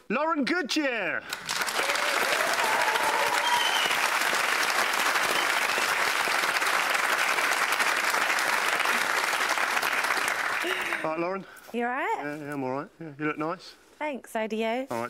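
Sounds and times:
audience applauding: 1.3s - 11.2s.

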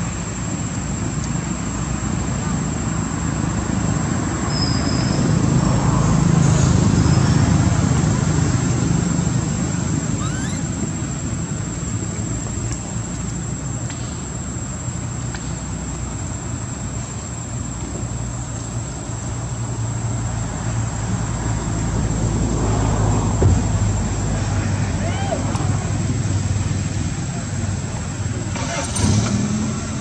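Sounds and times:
high insect drone: 0.0s - 30.0s
faint short chirps: 10.2s - 10.7s.

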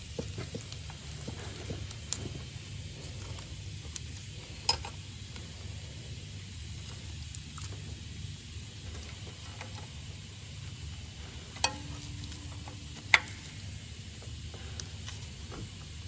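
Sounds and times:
low steady hum: 0.0s - 16.0s
spanner clicking on nuts: 11.6s - 13.6s.

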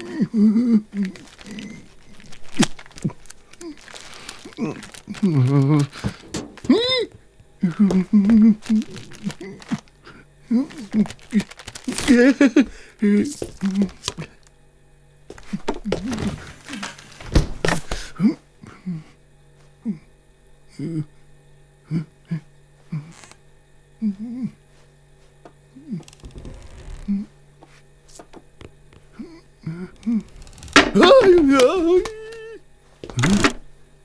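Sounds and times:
man whimpering and murmuring: 0.0s - 2.4s, 3.0s - 14.4s, 18.2s - 19.2s, 19.8s - 20.1s, 20.7s - 21.1s, 21.8s - 23.2s, 24.0s - 24.6s, 25.7s - 27.4s, 29.1s - 33.6s
steady low hum: 0.0s - 34.0s
broom clattering knocks: 6.0s - 6.8s.

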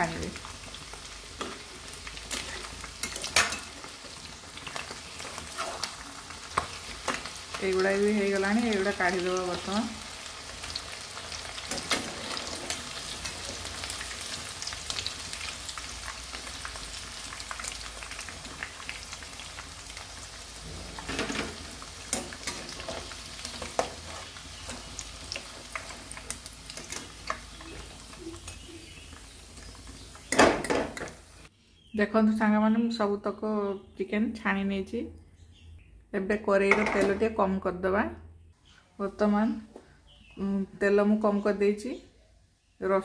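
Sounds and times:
deep-frying sizzling and crackling: 0.0s - 31.5s.

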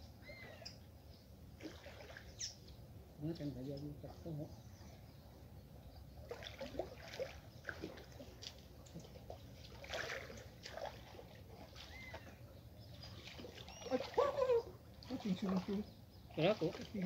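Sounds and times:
water sloshing and splashing: 1.5s - 2.7s, 6.2s - 17.0s.

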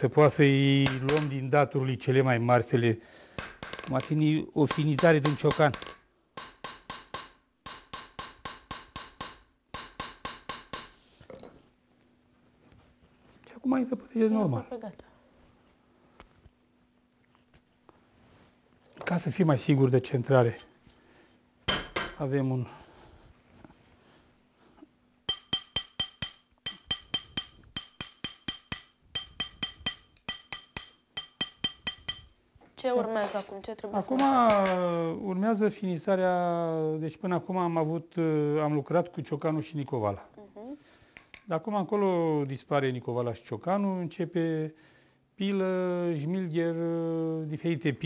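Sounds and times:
hammer tapping metal ring: 3.4s - 11.0s, 25.3s - 32.4s.

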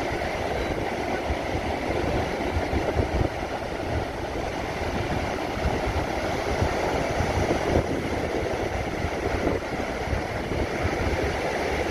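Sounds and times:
ocean surf breaking: 0.0s - 11.9s
wind buffeting microphone: 0.0s - 11.9s.

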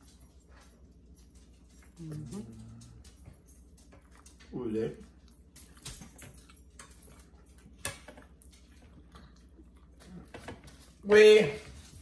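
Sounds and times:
chewing mouth noises: 5.1s - 10.4s.

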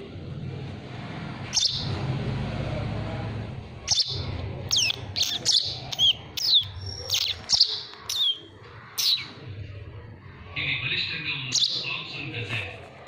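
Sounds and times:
sparrow chirping: 1.5s - 2.0s, 3.8s - 9.4s, 11.4s - 12.2s.

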